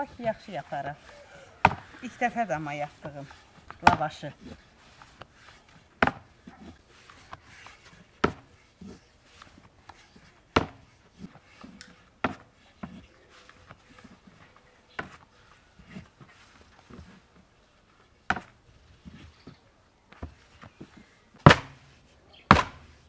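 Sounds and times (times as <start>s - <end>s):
rolling stick knocking on wood: 0.0s - 13.0s, 15.0s - 15.2s, 18.3s - 19.2s, 20.2s - 21.8s, 22.5s - 22.9s.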